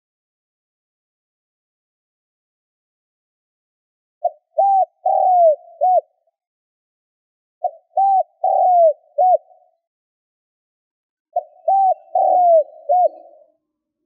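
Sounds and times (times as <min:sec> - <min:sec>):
dove cooing: 0:04.2 - 0:06.2, 0:07.6 - 0:09.7, 0:11.4 - 0:13.6.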